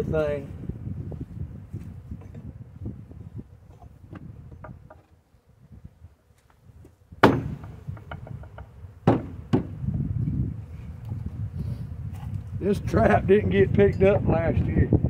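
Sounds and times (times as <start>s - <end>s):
wooden box thumping on hive: 7.2s - 10.0s.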